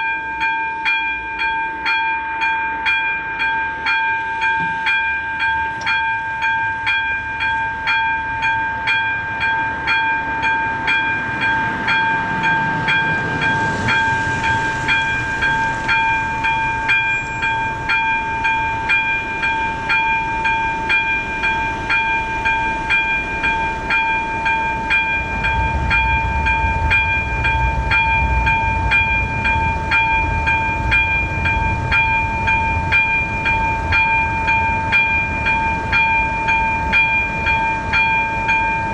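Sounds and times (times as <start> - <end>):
level crossing warning bell ringing: 0.0 - 38.9
low vehicle rumble: 10.6 - 38.9.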